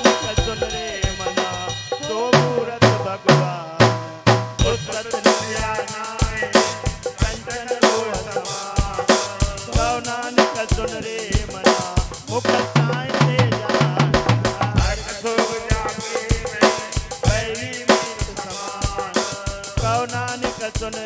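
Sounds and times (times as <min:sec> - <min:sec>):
devotional music with drum: 0:00.0 - 0:21.0
bass drum strikes: 0:10.7 - 0:17.6.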